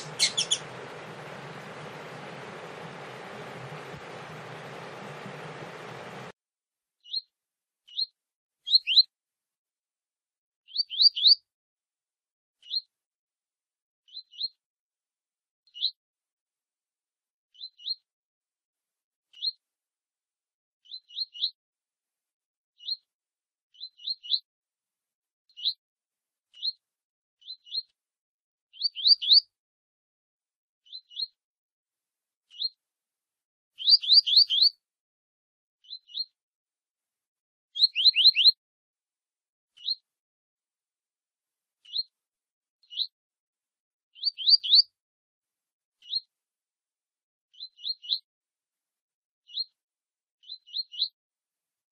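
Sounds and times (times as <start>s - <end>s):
bird chirps: 0.0s - 6.3s, 33.8s - 34.7s, 37.8s - 38.6s, 44.2s - 44.8s.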